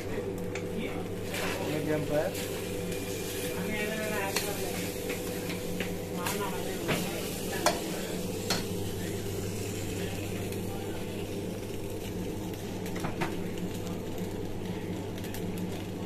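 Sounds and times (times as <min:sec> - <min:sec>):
pasta sizzling in a wok: 0:00.0 - 0:16.0.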